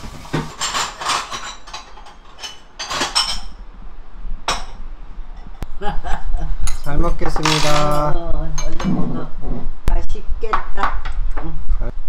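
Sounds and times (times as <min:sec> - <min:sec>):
tableware clinking: 0:00.4 - 0:03.6, 0:04.5 - 0:04.8, 0:06.6 - 0:09.2.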